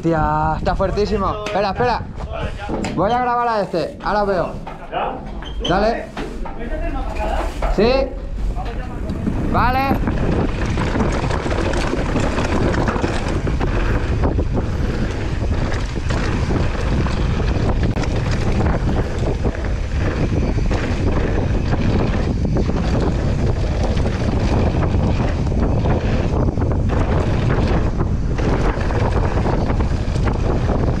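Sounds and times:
mountain bike rumble on dirt: 0:00.0 - 0:31.0
wind buffeting microphone: 0:00.0 - 0:31.0
clicks and knocks from bike: 0:10.0 - 0:31.0.

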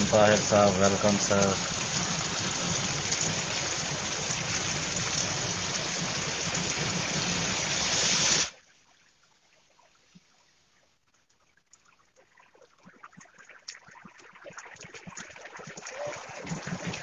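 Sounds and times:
heavy rain pouring: 0:00.0 - 0:08.5.

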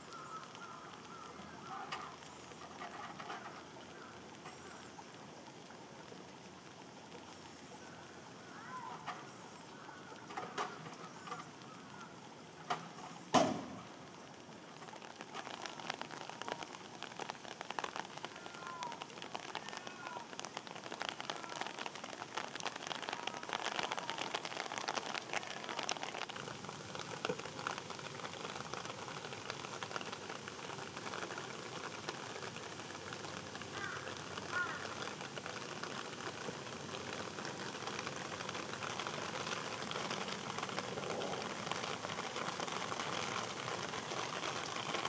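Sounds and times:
rain pattering: 0:00.0 - 0:45.0.

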